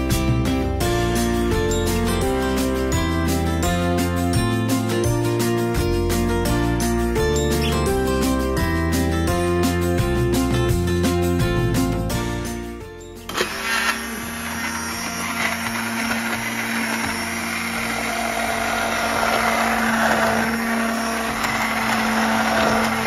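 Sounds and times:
immersion blender running: 13.3 - 23.0
liquid churning: 15.2 - 23.0.

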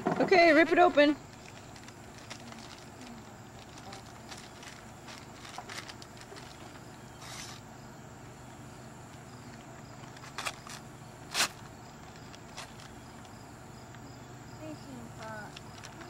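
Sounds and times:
wrapping paper tearing: 1.3 - 7.6, 10.1 - 12.9.

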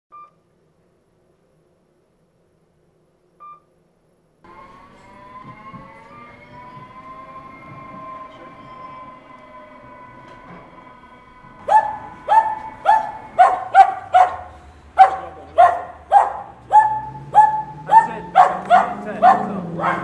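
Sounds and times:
machine rumbling with high whine: 4.4 - 20.0.

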